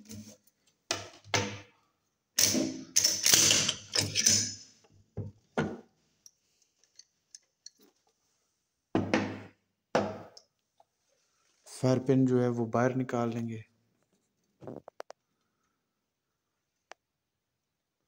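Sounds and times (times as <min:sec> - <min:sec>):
rifle parts clicking and clanking: 0:02.4 - 0:04.6
metal parts set on wooden table: 0:02.4 - 0:04.9.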